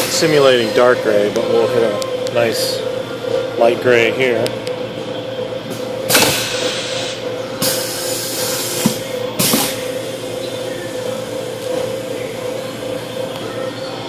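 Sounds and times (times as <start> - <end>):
printing press humming: 0.0 - 14.0.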